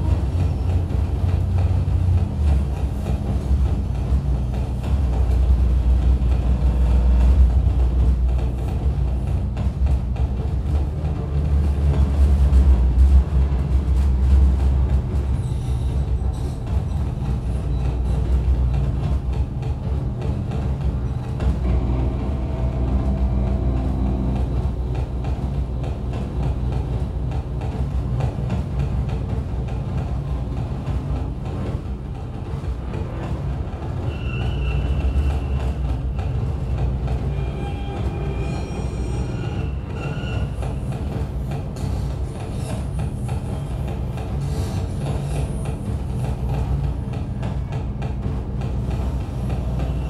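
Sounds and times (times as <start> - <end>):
droning tones: 0.0 - 29.1
harsh electronic noise wall: 0.0 - 50.0.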